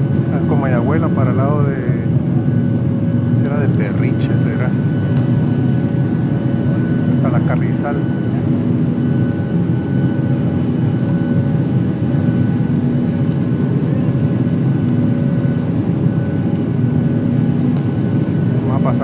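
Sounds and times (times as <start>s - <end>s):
jet engine roar in cabin: 0.0s - 19.0s.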